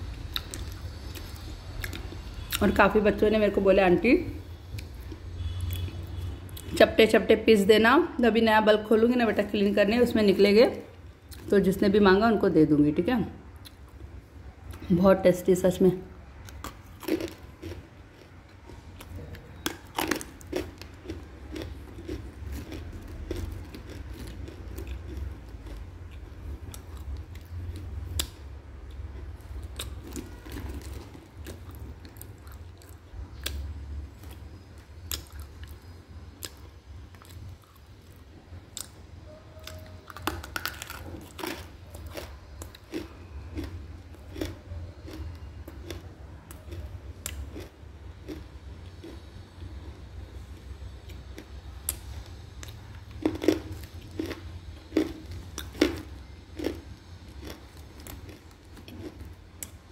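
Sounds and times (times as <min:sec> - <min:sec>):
person chewing crunchy clay: 0:00.0 - 0:02.8, 0:04.6 - 0:06.8, 0:16.4 - 0:39.0, 0:39.6 - 0:59.8.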